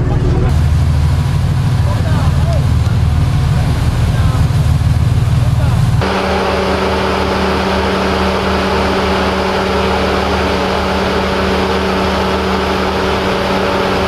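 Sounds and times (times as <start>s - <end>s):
ship engine machinery humming: 0.0s - 14.0s.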